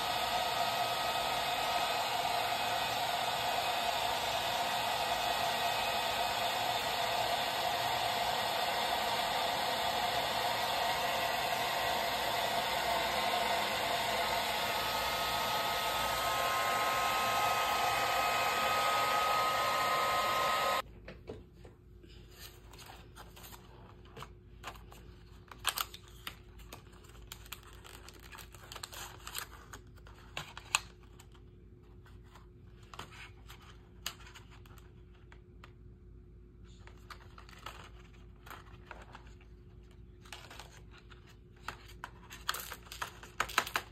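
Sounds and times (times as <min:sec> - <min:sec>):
hair dryer blowing: 0:00.0 - 0:20.8.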